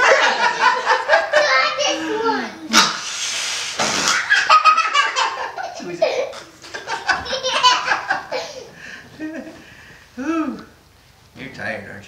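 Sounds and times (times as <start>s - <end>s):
people laughing: 0.0s - 2.3s, 4.2s - 9.6s.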